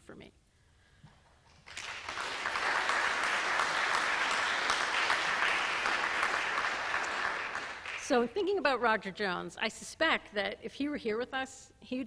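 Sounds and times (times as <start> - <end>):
audience applauding: 1.6 - 8.1.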